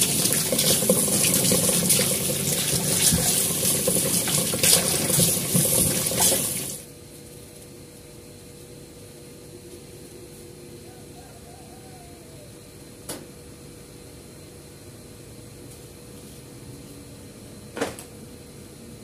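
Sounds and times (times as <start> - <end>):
tap water running into sink: 0.0 - 6.8
faint steady hum: 0.0 - 19.0.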